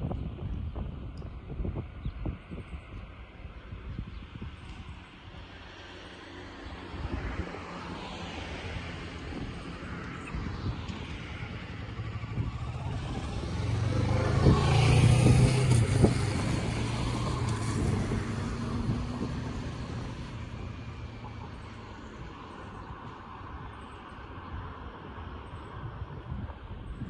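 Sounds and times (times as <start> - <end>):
vehicle driving past: 5.5 - 24.0.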